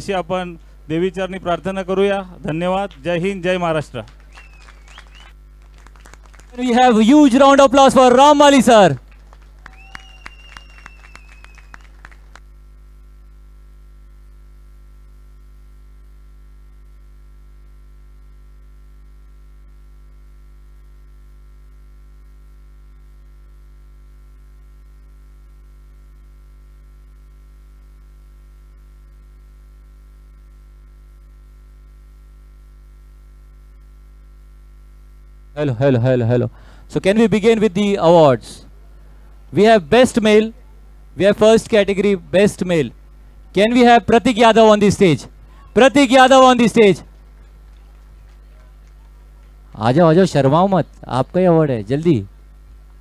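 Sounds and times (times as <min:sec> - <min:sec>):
electrical mains hum: 0:00.0 - 0:53.0
audience clapping: 0:02.8 - 0:03.2, 0:03.8 - 0:07.1, 0:08.8 - 0:12.6, 0:47.0 - 0:49.8.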